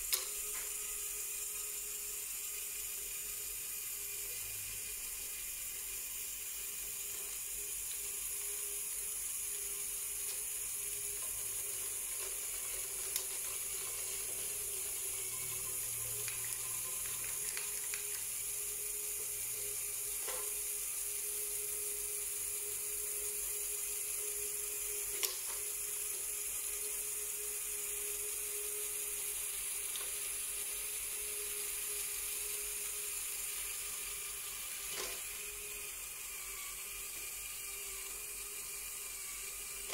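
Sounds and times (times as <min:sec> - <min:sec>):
sharp clicks from mechanism and balls: 0:00.0 - 0:00.8, 0:11.2 - 0:18.5, 0:25.1 - 0:25.7
electric motors and gears whirring: 0:00.0 - 0:39.9.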